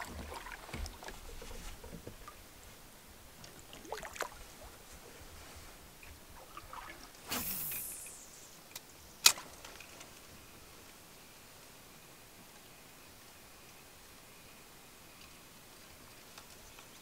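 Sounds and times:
light knocks in a canoe: 0.0s - 2.4s
brief swish: 7.2s - 8.5s.

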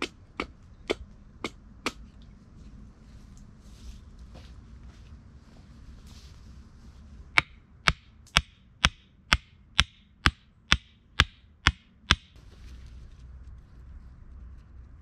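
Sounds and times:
hatchet knocking on wooden stake: 7.4s - 12.4s.

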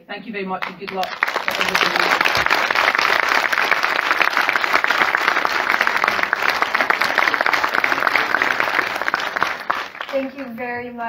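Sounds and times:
audience applauding: 0.6s - 10.7s.

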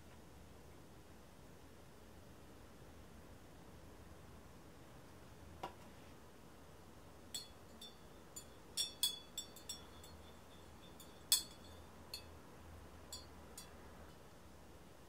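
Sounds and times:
drinking glass clinking: 7.3s - 12.3s, 13.1s - 13.8s.

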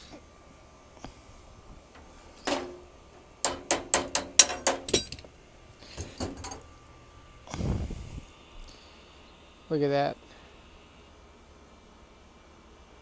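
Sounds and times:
sharp metallic taps: 3.4s - 5.2s
wrench on metal fitting clinking: 3.4s - 5.2s.

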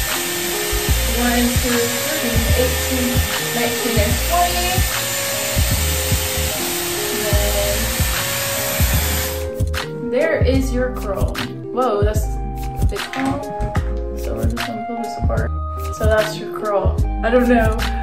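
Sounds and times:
hair styler airflow rushing: 0.0s - 9.7s
music with beat and singing: 0.0s - 18.0s.

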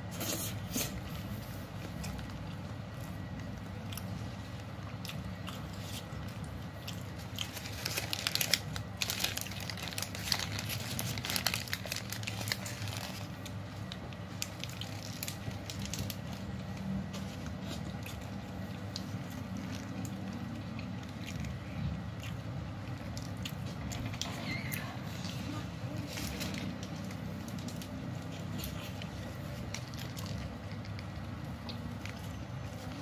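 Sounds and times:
low steady hum: 0.0s - 33.0s
paper wrapper crinkling: 6.9s - 21.5s, 24.0s - 31.2s.

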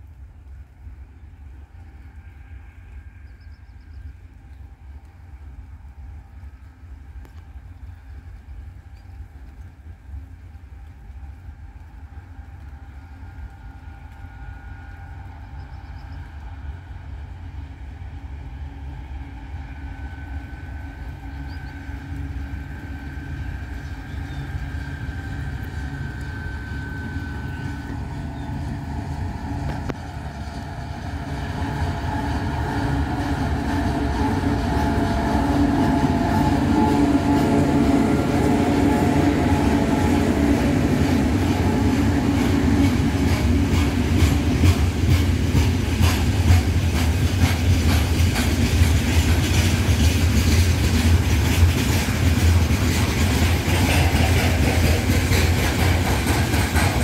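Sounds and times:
locomotive engine drone: 0.0s - 57.0s
high whine: 10.2s - 47.2s.

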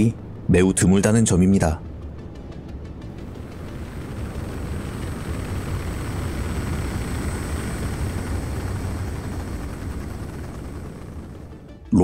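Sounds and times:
thin high whine: 3.2s - 11.6s
rocket engine roaring: 3.2s - 11.7s.

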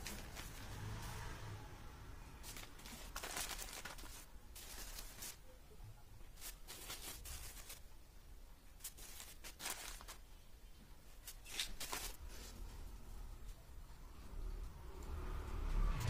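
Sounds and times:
powder rustling between fingers: 2.4s - 5.4s, 6.3s - 7.9s, 8.8s - 10.3s.

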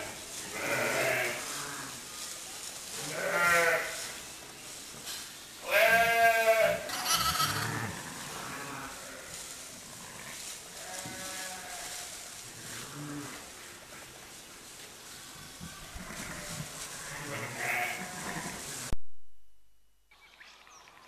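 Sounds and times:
sheep bleating: 3.1s - 4.0s, 5.6s - 9.3s, 15.6s - 18.7s.

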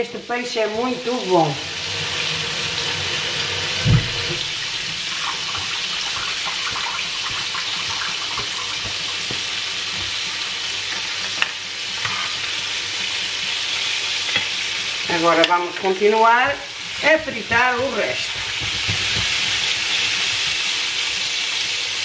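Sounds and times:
fish sizzling in oil: 0.0s - 22.0s
dull thump: 3.8s - 4.3s.

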